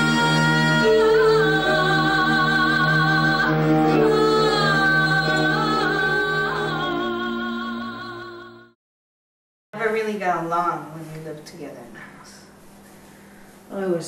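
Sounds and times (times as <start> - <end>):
held low music notes: 0.0 - 8.1
woman singing with vibrato: 0.0 - 8.7.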